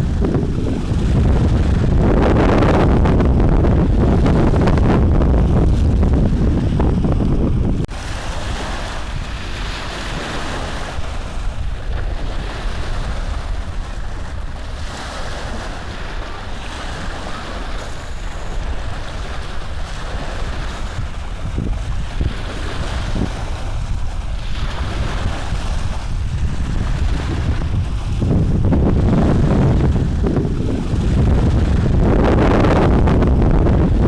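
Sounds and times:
low rumble: 0.0 - 8.0, 21.4 - 34.0
steady rushing noise: 0.0 - 34.0.

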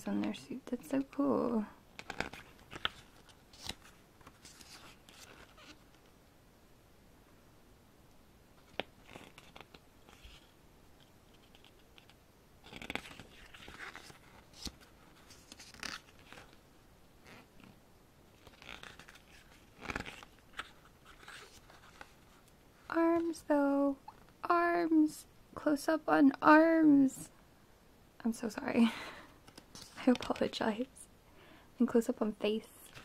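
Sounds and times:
pages rustling and flapping: 1.9 - 6.1, 8.6 - 16.6, 17.2 - 22.6, 29.4 - 30.6.

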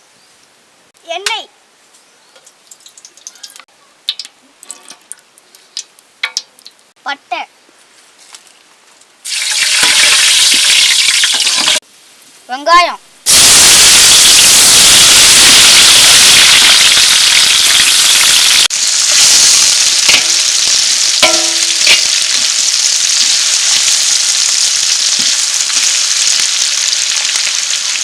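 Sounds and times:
shallots sizzling in hot oil: 9.3 - 11.8, 13.3 - 28.0.

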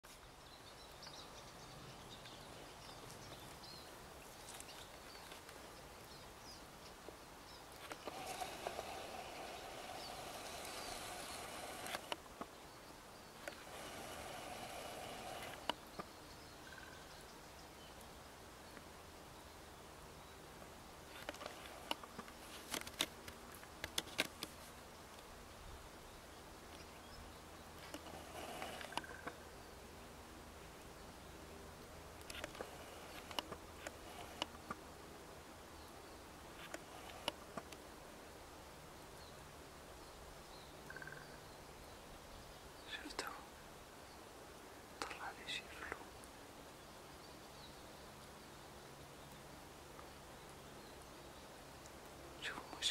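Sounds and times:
outdoor background hiss: 0.0 - 52.9
goldfinch chirps: 52.4 - 52.9.

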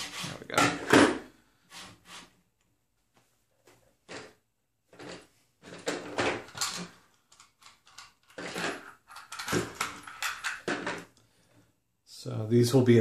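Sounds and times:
small hardware rustling and clattering: 3.6 - 11.2.

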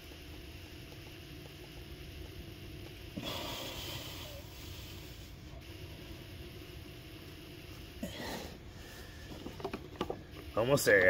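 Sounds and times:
low steady rumble: 0.0 - 10.6.

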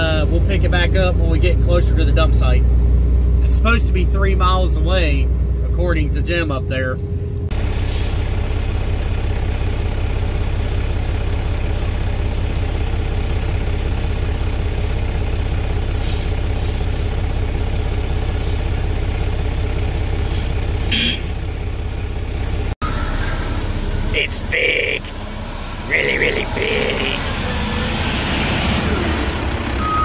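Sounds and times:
diesel engine idling: 0.0 - 30.0.

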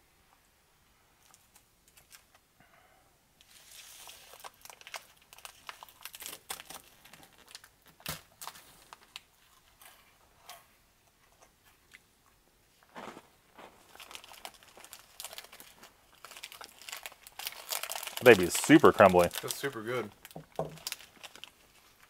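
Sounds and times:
foil wrapper crinkling: 3.4 - 10.0, 12.9 - 22.0.

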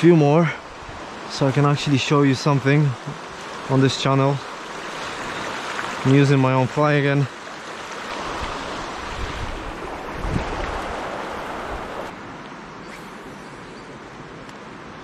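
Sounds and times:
river water rushing over stones: 1.1 - 12.2
wind rumbling on microphone: 8.1 - 12.3.

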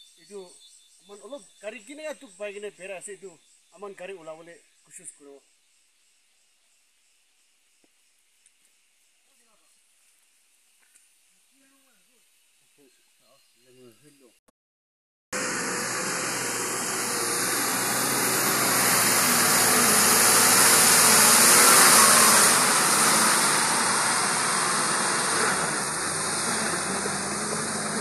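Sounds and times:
truck diesel engine in mud: 15.4 - 28.0.

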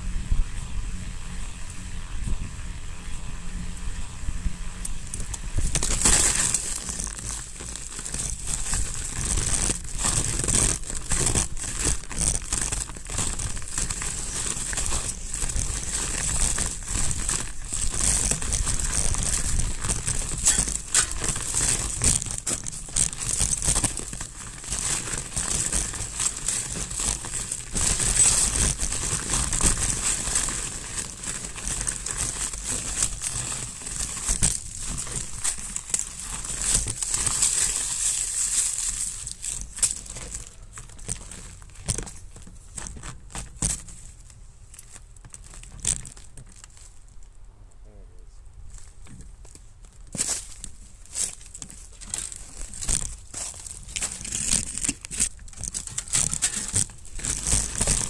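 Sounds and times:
bike tyres crunching snow: 0.0 - 47.3, 48.6 - 58.0.

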